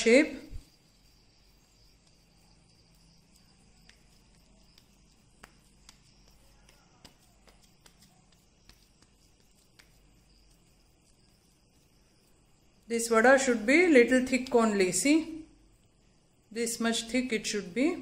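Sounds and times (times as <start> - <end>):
faint steady hiss: 0.0 - 18.0
hands patting dough: 0.4 - 12.9.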